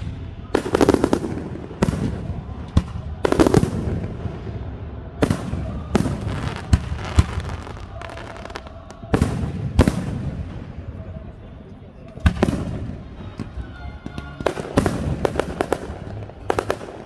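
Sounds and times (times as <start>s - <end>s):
crackling firework reports: 0.0s - 11.4s.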